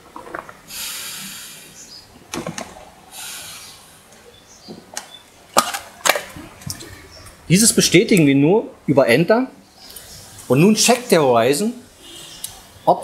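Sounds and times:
hissing breaths through mouthpiece: 0.7 - 2.0, 3.1 - 4.1.

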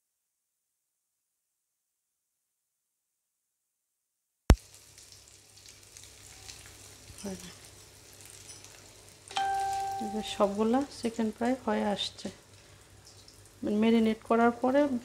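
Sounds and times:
deep-frying sizzle and crackles: 4.5 - 15.0.

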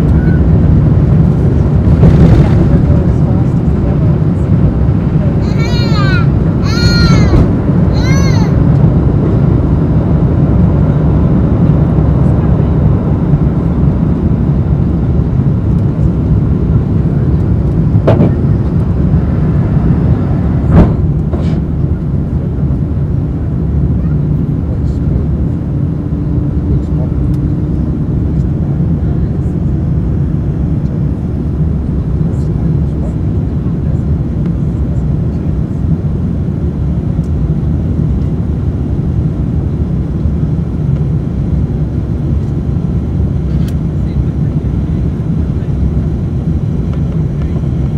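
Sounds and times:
rushing airflow: 0.0 - 12.2, 12.9 - 23.8
jet engine rumble: 0.0 - 47.9.

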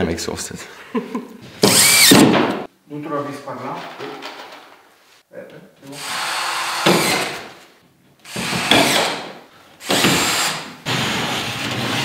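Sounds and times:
cordless drill driving screws: 1.6 - 2.2, 6.0 - 7.5, 8.3 - 10.7.

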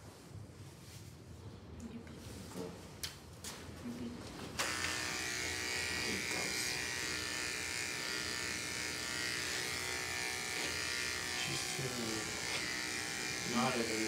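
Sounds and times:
electric hair clipper running: 4.6 - 14.0.

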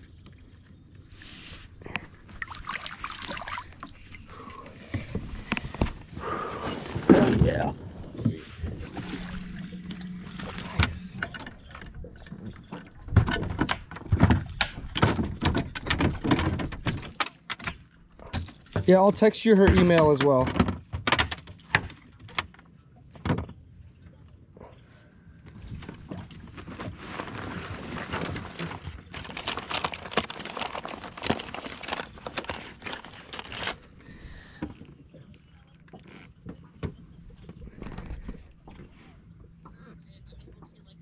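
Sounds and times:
clicks and knocks in metal boat: 10.7 - 22.6.

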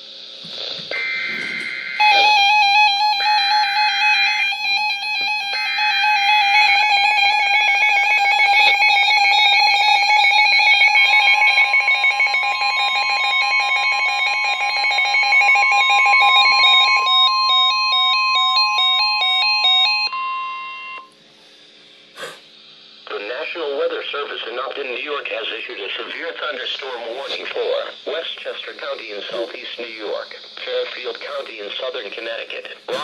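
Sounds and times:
overlapping electronic alarm beeps: 0.9 - 21.1.

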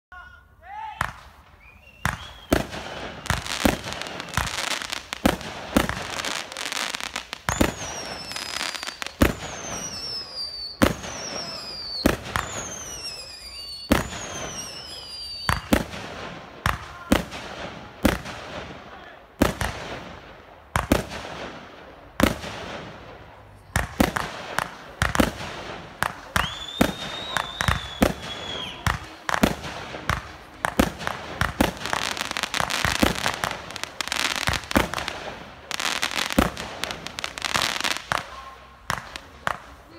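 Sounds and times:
firework bursts and bangs: 1.0 - 39.9
firework whistles: 1.4 - 5.3, 6.1 - 15.9, 26.3 - 29.2.

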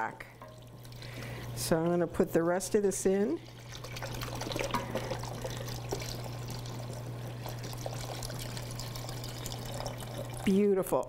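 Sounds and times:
liquid pouring into a saucepan: 0.4 - 10.6.

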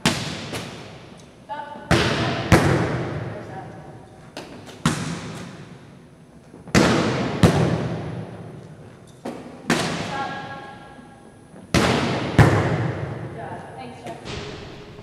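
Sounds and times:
volleyball smacks echoing: 0.0 - 1.1, 1.9 - 3.4, 4.4 - 5.8, 6.7 - 8.5, 9.3 - 10.5, 11.7 - 13.3.

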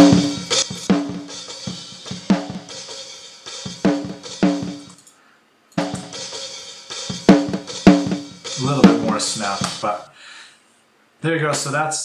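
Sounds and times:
snare drum hits: 7.3 - 10.0.

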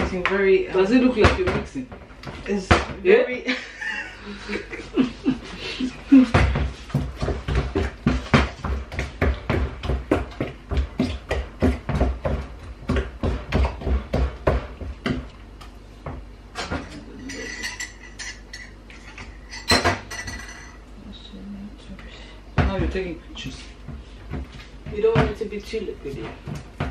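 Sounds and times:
soft kitchen sounds: 0.0 - 26.9
wooden spoon beating batter: 4.7 - 16.4, 22.5 - 26.9.

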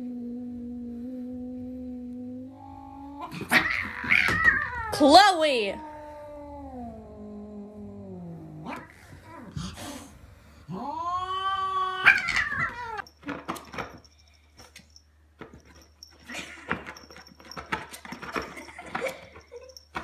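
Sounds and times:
cat yowling: 2.6 - 7.0, 10.7 - 13.0.

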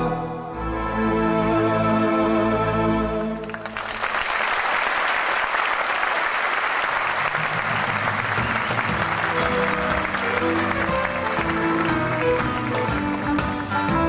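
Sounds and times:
audience applause: 3.4 - 14.0
held musical chord: 9.0 - 14.0.

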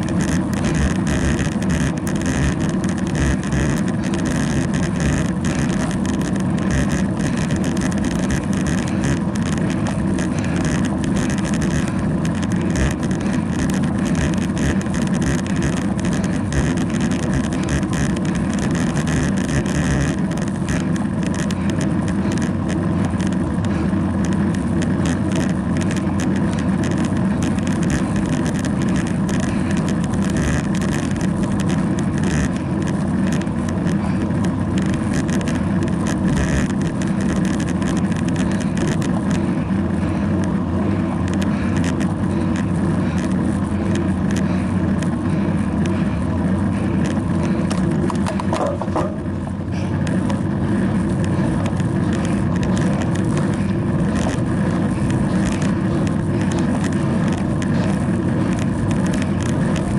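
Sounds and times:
bicycle tyre noise on road: 0.0 - 59.9.

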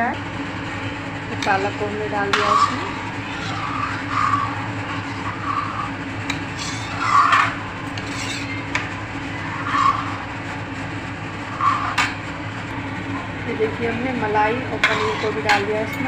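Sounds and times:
steady low hum: 0.0 - 16.0
ladle scraping metal pan: 1.4 - 10.2, 14.8 - 15.7.

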